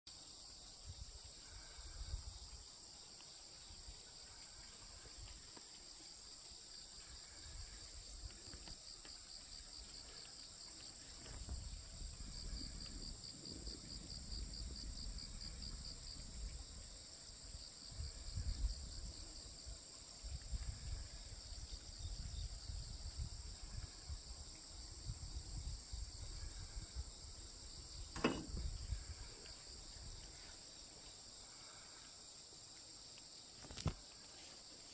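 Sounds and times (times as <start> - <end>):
high-pitched insect chorus: 0.1 - 34.9
wind buffeting microphone: 20.2 - 29.4
sharp knock: 28.2 - 28.6.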